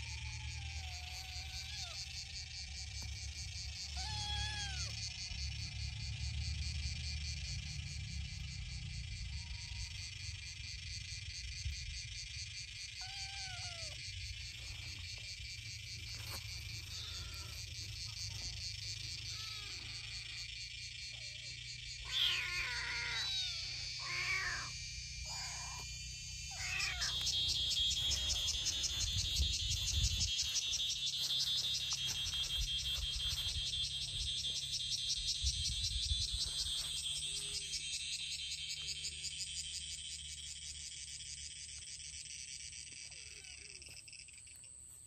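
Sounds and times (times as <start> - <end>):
insects chirping: 0.0 - 45.0
kittens meowing: 0.2 - 2.0, 3.8 - 5.0, 13.0 - 14.0, 16.8 - 17.7, 19.2 - 20.3, 22.0 - 29.1, 43.1 - 43.9.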